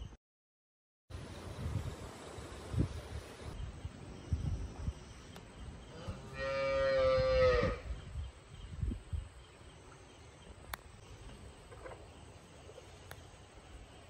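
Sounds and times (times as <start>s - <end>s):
cow mooing: 6.2s - 7.8s.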